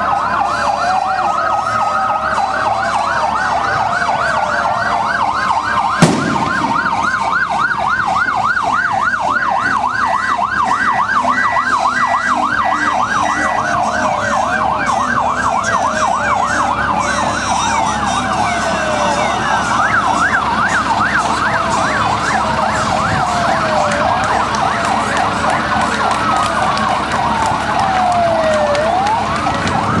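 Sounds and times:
siren wails falling in pitch: 0:00.0 - 0:30.0
siren yelp: 0:00.0 - 0:30.0
sharp bang: 0:06.0 - 0:07.2.

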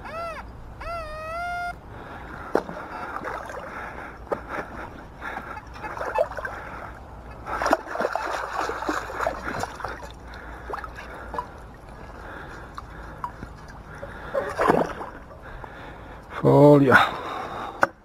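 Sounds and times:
shallow water sloshing and splashing: 0:02.4 - 0:16.0.

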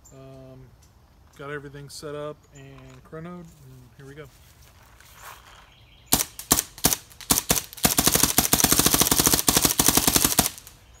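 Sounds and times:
paintball marker firing: 0:06.1 - 0:10.7.

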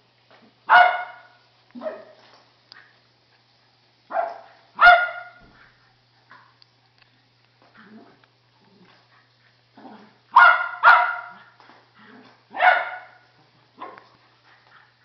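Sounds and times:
dog barking: 0:00.7 - 0:02.2, 0:04.1 - 0:05.4, 0:10.3 - 0:11.5, 0:12.5 - 0:13.2, 0:13.8 - 0:14.1.

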